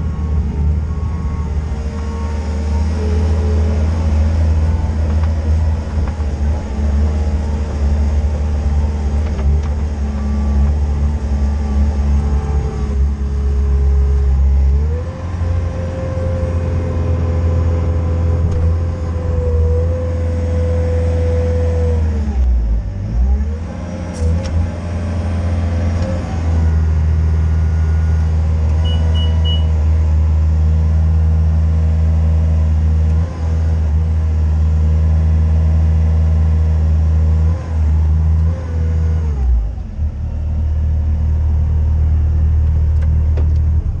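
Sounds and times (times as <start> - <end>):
diesel engine running: 0.0 - 44.0.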